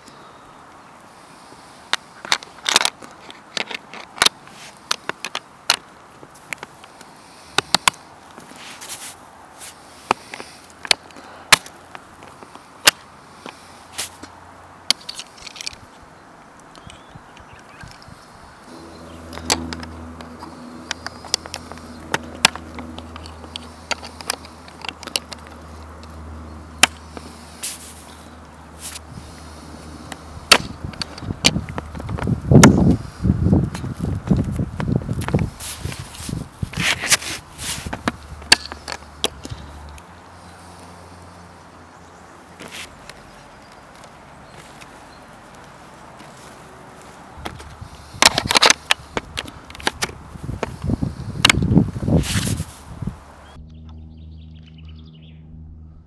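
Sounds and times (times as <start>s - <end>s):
hard parts clicking and clacking: 1.9s - 5.9s, 18.8s - 26.2s, 29.8s - 32.8s, 33.7s - 40.0s, 47.4s - 51.7s
steady low hum: 18.5s - 40.6s, 48.8s - 56.0s.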